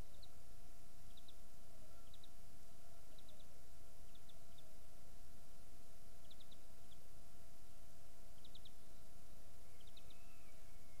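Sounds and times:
small bird chirping: 0:00.0 - 0:00.4, 0:01.0 - 0:02.4, 0:03.0 - 0:04.9, 0:06.1 - 0:11.0
background hiss and rumble: 0:00.0 - 0:11.0
faint electrical hum: 0:00.0 - 0:11.0.

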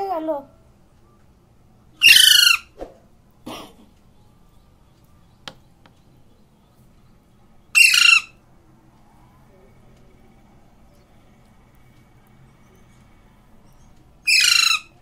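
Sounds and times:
parakeet squawks: 0:02.0 - 0:02.8, 0:07.7 - 0:08.4, 0:14.2 - 0:15.0.

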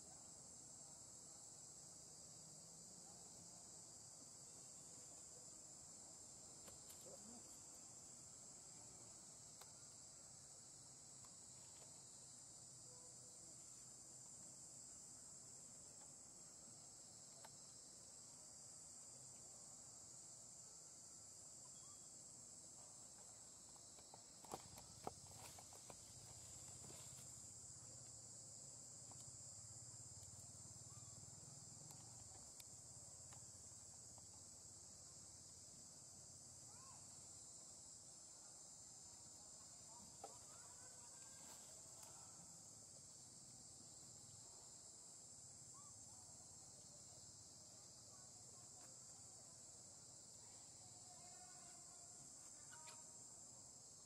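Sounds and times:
insects buzzing: 0:00.0 - 0:54.0
short insect chirps: 0:20.6 - 0:35.5, 0:49.7 - 0:54.0.

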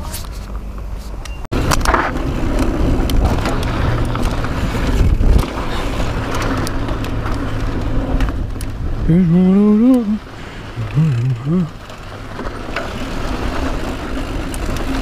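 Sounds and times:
bike tyres rolling over dirt: 0:00.0 - 0:15.0
wind on microphone: 0:01.5 - 0:11.8
bike rattling and clicking: 0:01.5 - 0:15.0.

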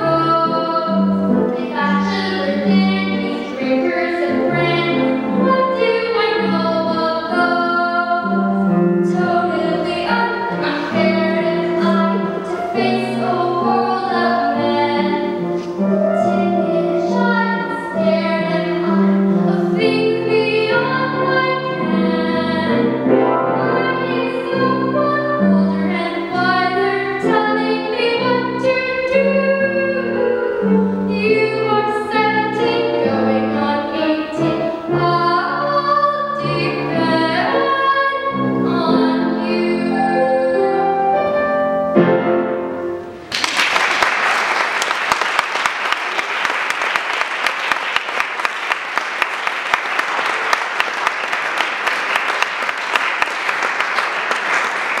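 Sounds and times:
piano accompaniment: 0:00.0 - 0:55.0
person singing: 0:09.1 - 0:41.4
audience applauding: 0:43.3 - 0:55.0.

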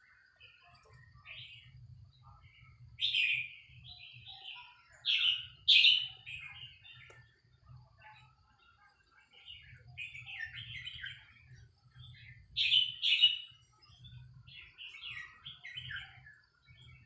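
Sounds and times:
bird singing warbled phrases: 0:00.0 - 0:17.0.

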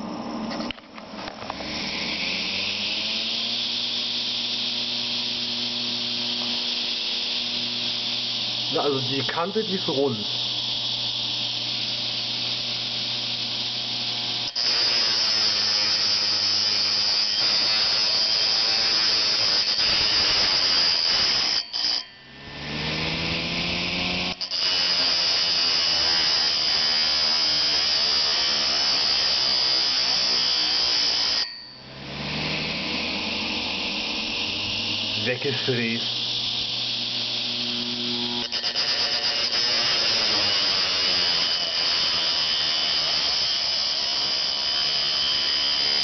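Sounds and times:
hard drive spinning up whine: 0:00.0 - 0:14.6, 0:22.1 - 0:24.4, 0:31.4 - 0:38.6.

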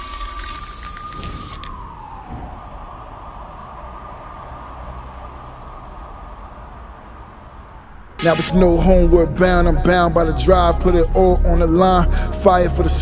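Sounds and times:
spray can hiss: 0:00.0 - 0:01.7
low rumble: 0:07.5 - 0:13.0
gliding synth tone: 0:07.8 - 0:13.0.

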